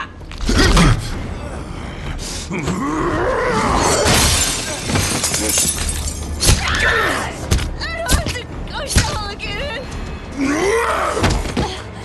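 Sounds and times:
film score: 0:00.0 - 0:12.0
crashing and shattering: 0:03.8 - 0:06.7.

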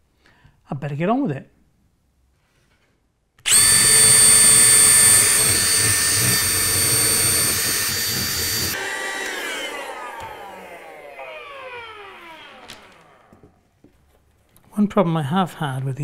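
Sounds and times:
cordless drill boring: 0:03.4 - 0:13.4
handheld vacuum sucking: 0:03.4 - 0:13.4.

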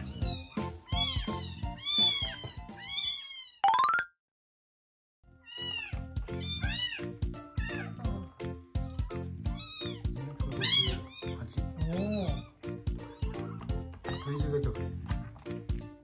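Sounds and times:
kitten meowing: 0:00.0 - 0:03.6, 0:05.5 - 0:08.0, 0:08.9 - 0:14.8.

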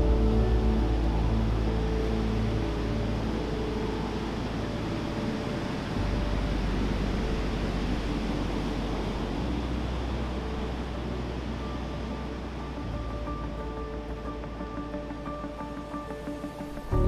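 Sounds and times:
ambient music of held chords: 0:00.0 - 0:17.0
sea surf rushing: 0:00.0 - 0:17.0.

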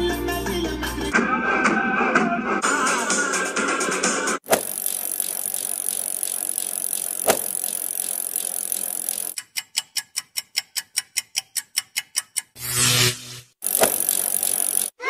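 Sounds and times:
sharp clicks: 0:04.5 - 0:09.4, 0:13.6 - 0:15.0
fast even ticking: 0:04.5 - 0:12.6, 0:13.6 - 0:15.0.

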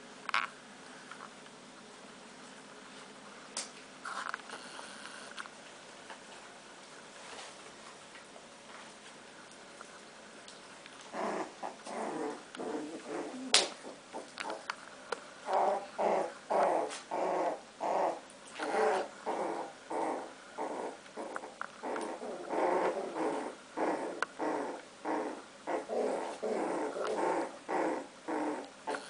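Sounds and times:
puppies growling: 0:11.0 - 0:14.8, 0:15.4 - 0:29.0.

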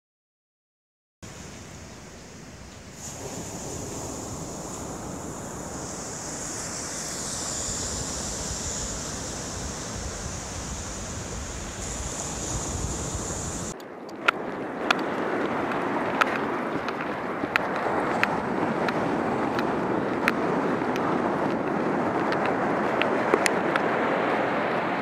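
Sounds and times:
ocean surf: 0:01.2 - 0:25.0
wind on the microphone: 0:01.2 - 0:25.0
sharp ticks: 0:01.9 - 0:14.3.

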